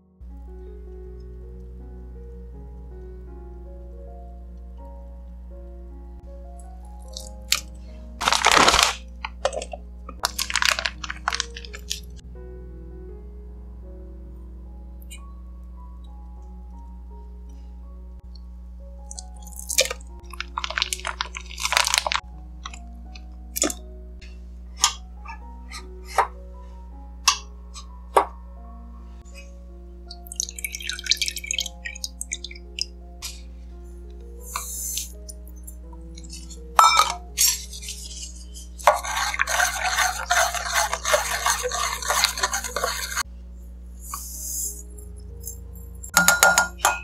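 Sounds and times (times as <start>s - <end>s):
soft background music: 0.0s - 47.0s
solid chunks crunching into pot: 7.0s - 12.1s, 19.1s - 22.8s, 36.2s - 43.2s
plastic bag crinkling: 8.2s - 12.1s, 20.4s - 22.2s
metal cups clinking: 36.2s - 38.0s, 38.8s - 43.2s, 46.1s - 47.0s
metal spoon stirring in steel mug: 36.2s - 43.3s.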